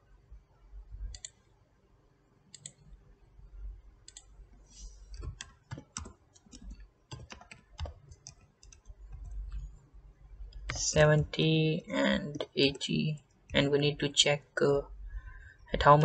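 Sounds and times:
keyboard typing: 1.0s - 1.5s, 2.5s - 2.9s, 4.0s - 4.4s, 5.1s - 9.8s, 10.4s - 11.4s
mouse clicks: 1.1s - 1.4s, 2.5s - 2.8s, 4.1s - 4.3s.

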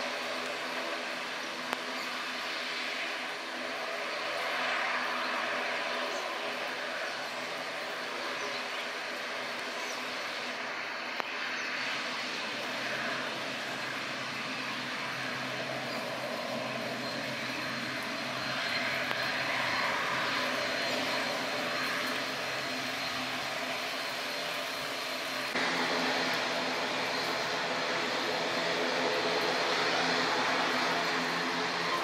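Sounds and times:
thin high engine whine: 0.0s - 32.0s
turboprop engines running: 0.0s - 32.0s.

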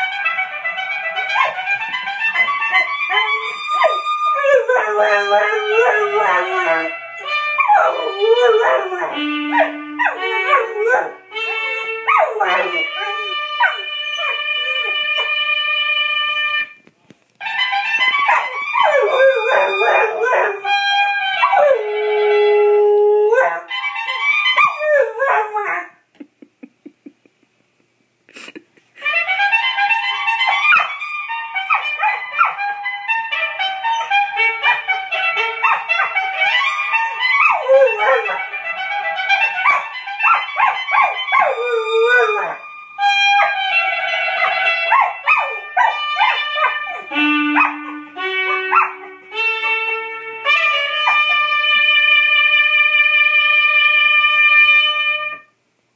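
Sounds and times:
dog howling and yipping: 0.9s - 15.4s, 17.8s - 26.0s, 30.3s - 31.0s, 31.7s - 32.6s, 33.8s - 49.9s, 50.5s - 51.6s
trumpet fanfare: 5.0s - 16.8s, 29.0s - 40.7s, 43.3s - 55.4s.

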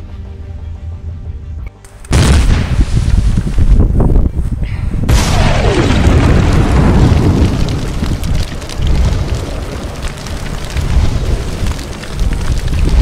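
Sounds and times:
deep rumble: 0.0s - 13.0s
fire crackling: 1.9s - 13.0s
explosion: 2.1s - 3.8s, 5.0s - 13.0s.

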